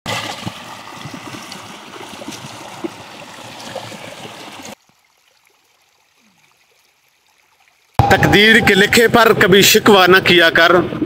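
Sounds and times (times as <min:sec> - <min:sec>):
stream running over stones: 0:00.1 - 0:08.0.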